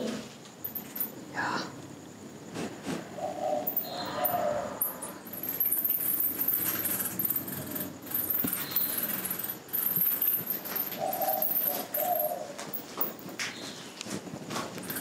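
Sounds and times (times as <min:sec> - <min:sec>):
bats chittering: 0:03.2 - 0:13.2.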